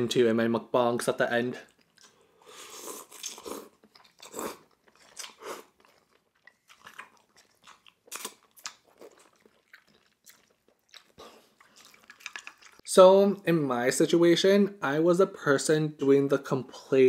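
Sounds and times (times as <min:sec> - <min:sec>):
person chewing: 0:01.6 - 0:12.9
person slurping from bowl: 0:02.0 - 0:05.8.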